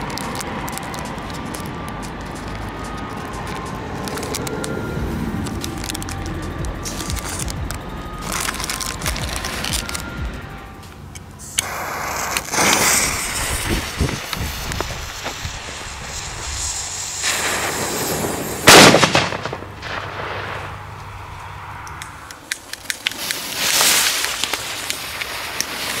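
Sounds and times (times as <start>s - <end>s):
firework hissing: 0.0s - 10.1s, 11.3s - 21.4s, 22.6s - 26.0s
firecracker bang: 11.6s - 21.0s.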